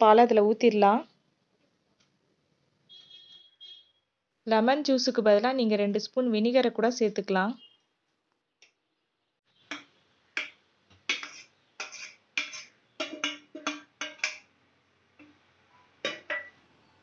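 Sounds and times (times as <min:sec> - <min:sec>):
spoon scraping a steel bowl: 0:11.1 - 0:14.4.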